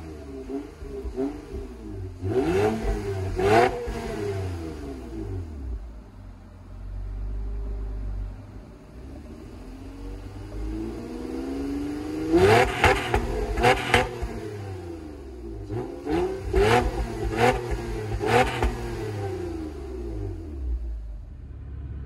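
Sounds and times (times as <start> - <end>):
car engine revving: 0.0 - 6.2, 7.6 - 22.0.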